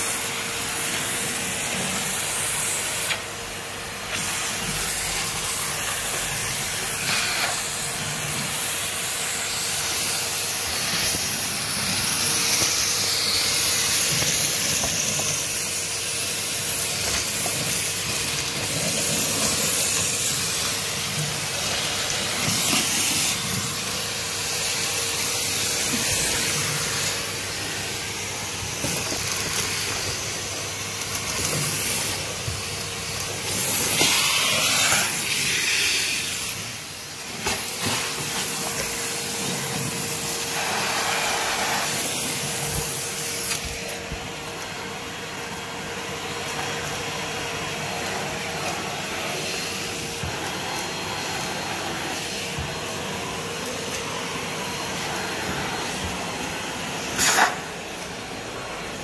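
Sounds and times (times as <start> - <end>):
vacuum cleaner on wooden floor: 0.0 - 59.0.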